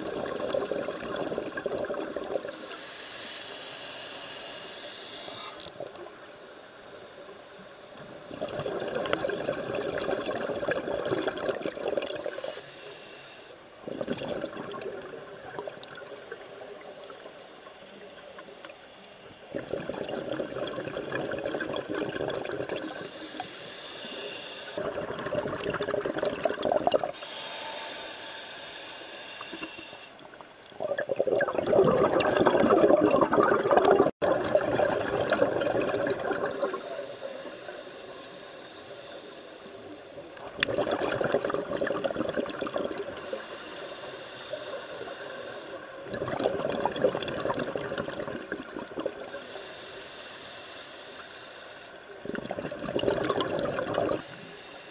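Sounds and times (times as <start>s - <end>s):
diver inhaling through regulator: 2.5s - 5.8s, 12.2s - 13.6s, 22.6s - 24.8s, 27.1s - 30.2s, 36.4s - 39.9s, 43.0s - 46.0s, 49.2s - 52.2s, 54.0s - 54.9s
bubbling exhalation: 13.9s - 15.8s, 19.5s - 23.0s, 24.8s - 27.2s, 30.8s - 36.7s, 40.6s - 43.2s, 46.1s - 49.3s, 52.2s - 54.2s.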